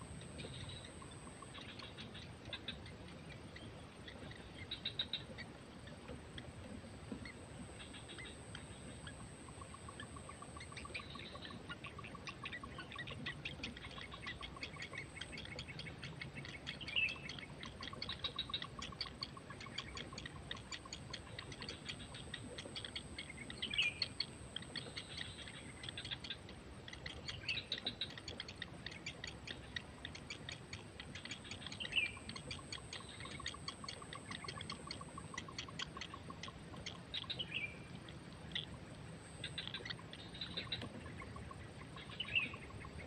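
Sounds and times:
nestlings ticking begging calls: 7.2s - 38.8s.

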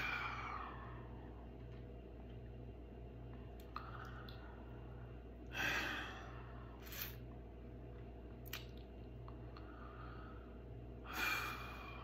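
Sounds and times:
steady low hum: 0.0s - 12.0s
man breathing heavily: 3.7s - 6.8s, 9.6s - 12.0s.

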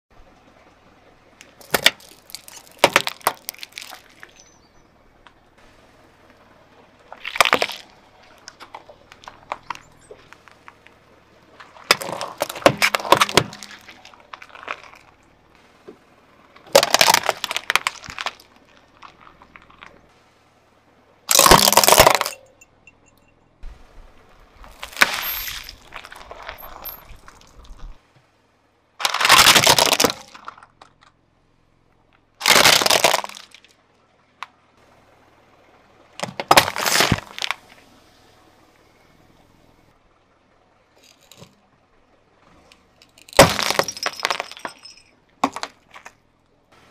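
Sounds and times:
small crackles: 1.4s - 4.6s, 7.0s - 20.2s
objects crushed under car wheel: 1.5s - 4.5s, 7.1s - 11.0s, 11.6s - 15.3s, 16.6s - 20.0s, 21.3s - 22.6s, 24.6s - 28.0s, 29.0s - 31.1s, 32.4s - 33.7s, 36.2s - 37.8s, 43.0s - 46.2s.

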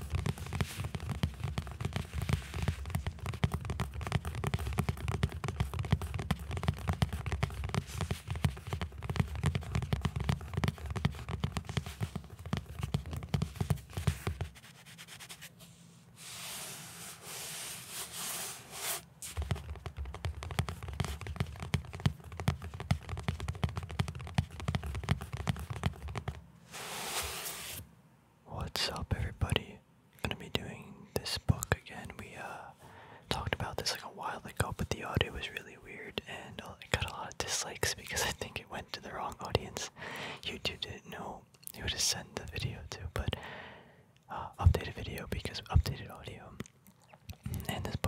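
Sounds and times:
fingers tapping on a book: 0.0s - 14.8s, 19.2s - 26.5s, 36.9s - 38.6s, 44.6s - 48.0s
hissing scratch on book cover: 0.1s - 21.7s, 26.7s - 27.8s.

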